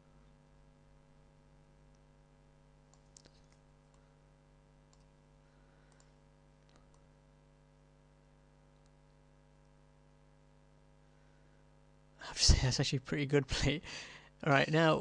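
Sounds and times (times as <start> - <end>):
low electrical hum: 0.0 - 15.0
computer mouse clicks: 2.9 - 4.1, 4.9 - 5.2, 5.9 - 7.1, 8.7 - 9.2.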